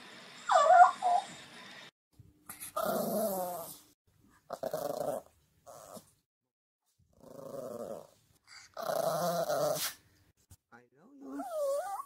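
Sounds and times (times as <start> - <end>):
dog growly talking vocalizations: 11.1 - 12.0.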